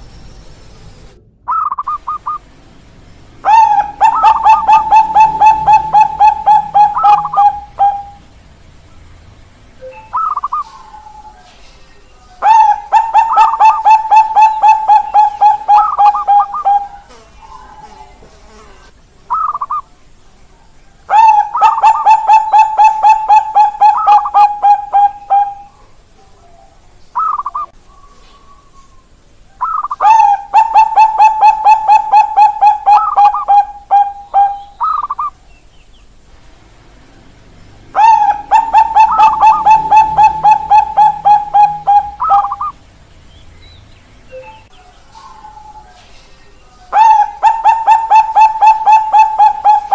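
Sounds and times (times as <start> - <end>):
dove cooing: 3.4 - 8.3, 9.9 - 11.4, 12.4 - 19.8, 21.1 - 35.4, 37.9 - 42.8, 46.9 - 49.9.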